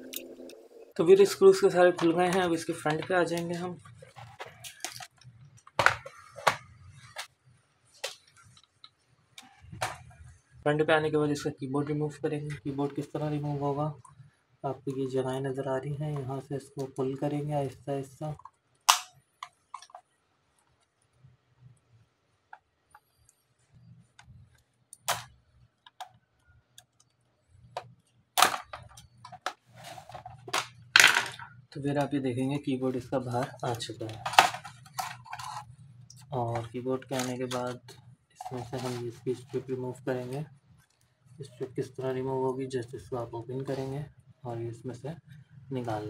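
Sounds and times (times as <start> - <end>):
plastic clicks and snaps: 18.4 - 20.0.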